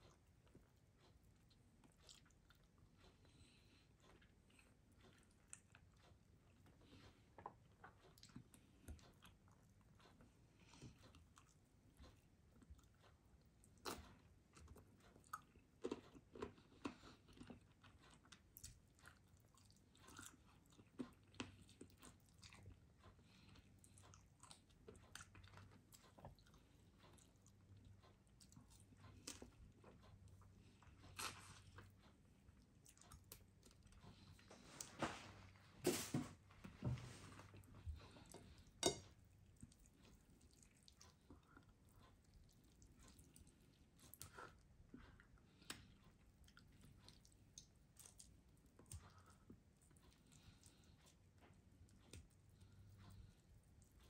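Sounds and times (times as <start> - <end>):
faint chewing: 0.0 - 54.0
fork clicking on plate: 38.3 - 39.0.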